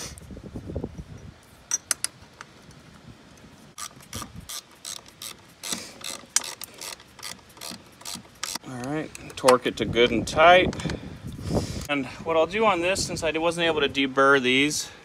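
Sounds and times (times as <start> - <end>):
ratchet wrench clicking: 3.8 - 8.6.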